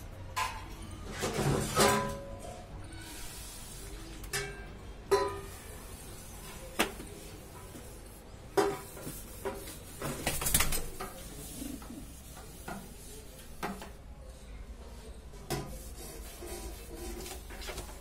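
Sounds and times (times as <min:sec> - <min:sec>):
pigeon cooing: 0:10.9 - 0:12.3.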